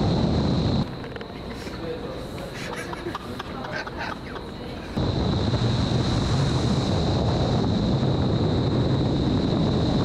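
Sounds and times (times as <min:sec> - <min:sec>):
wind tunnel airflow rushing: 0:00.0 - 0:01.0, 0:04.7 - 0:10.0
steady high whine: 0:00.0 - 0:10.0.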